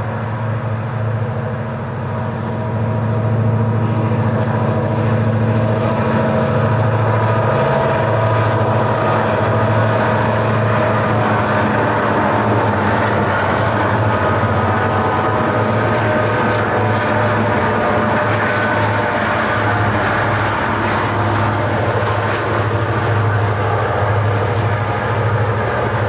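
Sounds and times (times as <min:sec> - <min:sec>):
diesel locomotives droning: 0:00.0 - 0:26.0.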